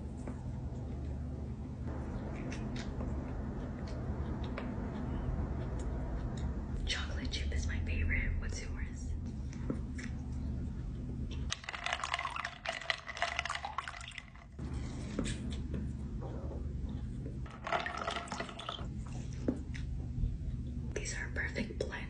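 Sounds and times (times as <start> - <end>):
steady low hum: 0.0 - 22.0
wet chewing and squelching: 1.9 - 6.7.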